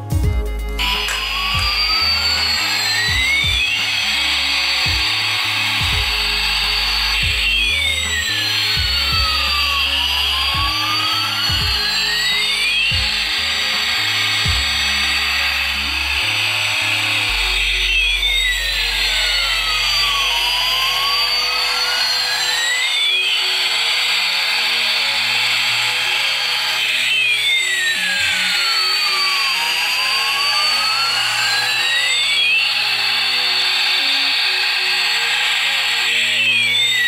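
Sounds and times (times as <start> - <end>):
toy jet engine hiss and whine: 0.0 - 37.0.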